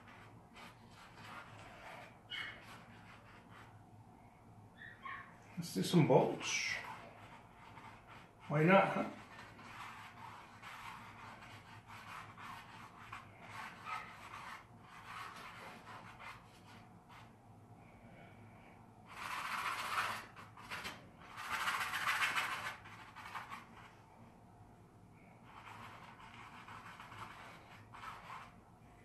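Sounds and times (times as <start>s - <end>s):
brush strokes on canvas: 5.6s - 17.4s.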